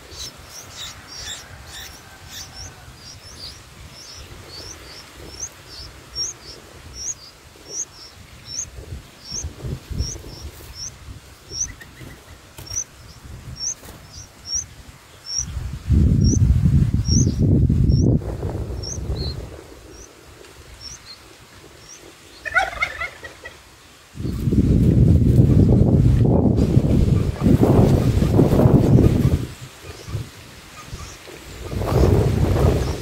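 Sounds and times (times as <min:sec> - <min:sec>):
nestlings chirping: 0:00.0 - 0:18.2, 0:18.8 - 0:20.1, 0:20.7 - 0:23.1.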